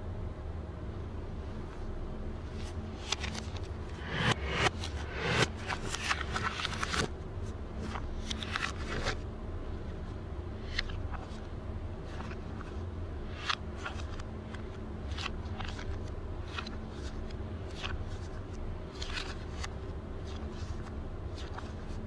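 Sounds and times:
steady low hum: 0:00.0 - 0:22.0
banknotes rustling: 0:02.4 - 0:07.1, 0:07.7 - 0:09.2, 0:10.6 - 0:22.0.

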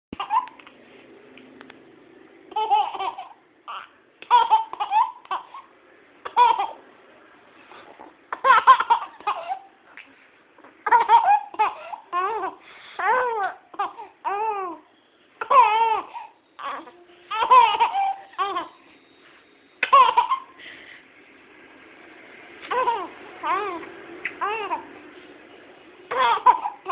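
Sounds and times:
baby laughing: 0:00.2 - 0:00.6, 0:02.5 - 0:06.8, 0:08.3 - 0:09.8, 0:10.8 - 0:14.8, 0:15.4 - 0:18.8, 0:19.8 - 0:20.6, 0:22.6 - 0:24.9, 0:26.1 - 0:26.9.

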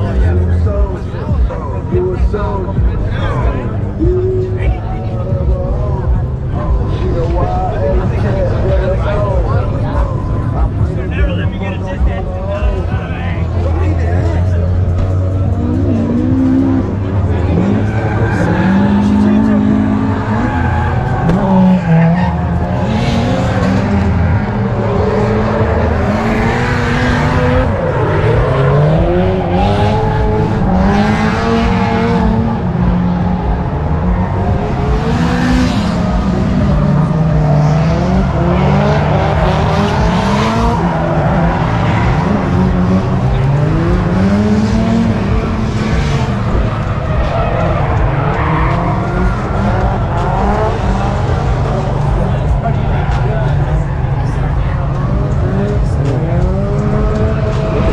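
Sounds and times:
car engines revving: 0:00.0 - 0:57.9
tire squeal: 0:17.5 - 0:25.2, 0:45.9 - 0:52.2.

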